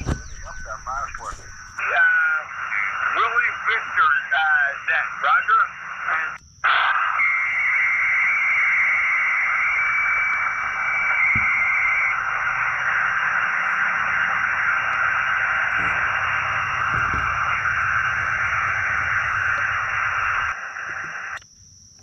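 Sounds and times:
radio static hiss: 0:00.0 - 0:21.4
whistle-like tone: 0:07.2 - 0:12.6.

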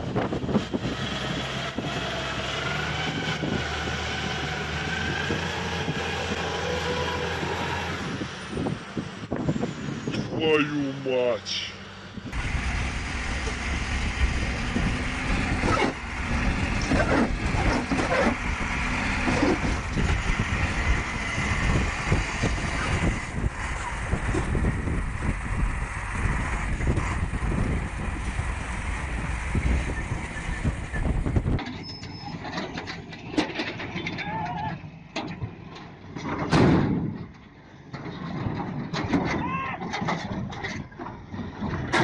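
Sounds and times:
diesel engines rumbling under load: 0:00.0 - 0:42.0
knocks and clanks: 0:35.1 - 0:42.0.

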